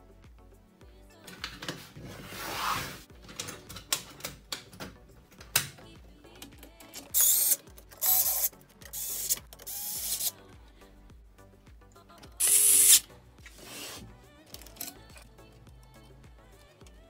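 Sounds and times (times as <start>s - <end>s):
electric screwdriver whirring: 7.1s - 10.3s, 12.4s - 13.0s.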